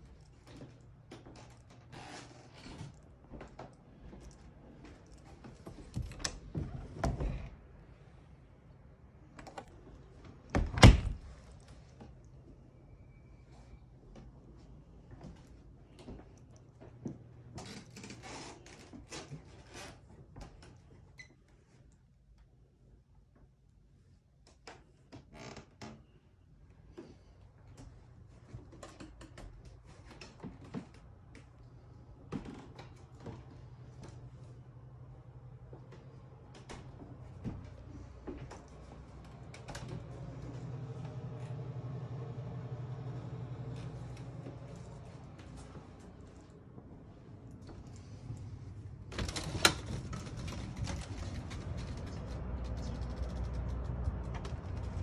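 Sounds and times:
loud door thunk: 10.6 - 11.3.

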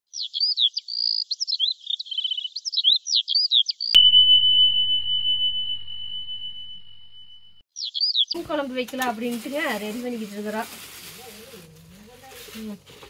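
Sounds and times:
high chirps and trills: 0.1 - 8.4
bell-like ding: 4.0 - 7.6.

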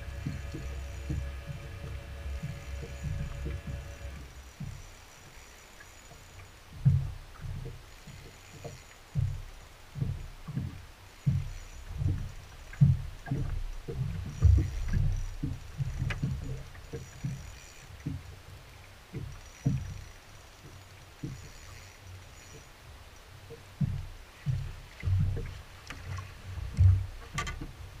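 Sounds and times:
waves slapping boat hull: 0.0 - 28.0.

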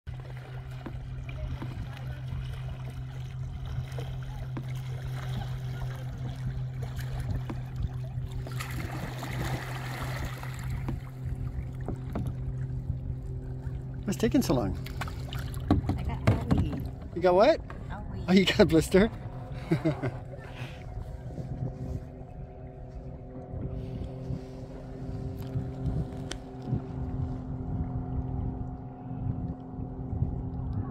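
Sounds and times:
paddle splashing in water: 0.1 - 17.9
motorboat engine drone: 0.1 - 30.9
steady low hum: 0.1 - 30.9
wind rumbling on microphone: 0.1 - 30.9.

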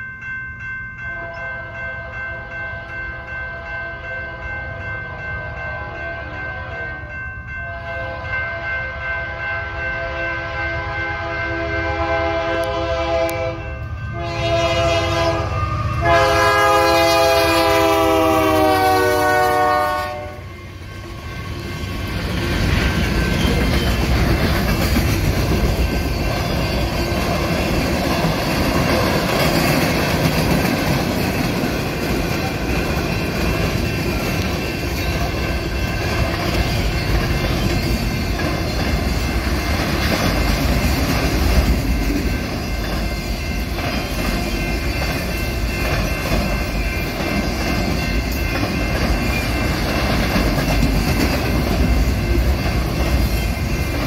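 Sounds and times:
freight train wheels rumbling on rails: 0.0 - 54.0
locomotive air horn blasts: 7.7 - 20.4.

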